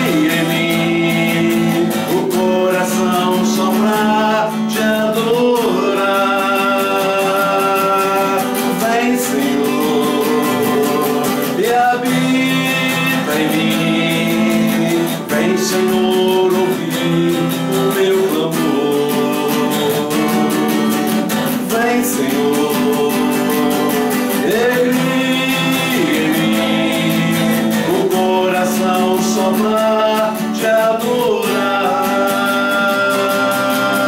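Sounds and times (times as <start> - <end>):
acoustic guitar strumming: 0.0 - 34.0
person singing: 0.0 - 34.0.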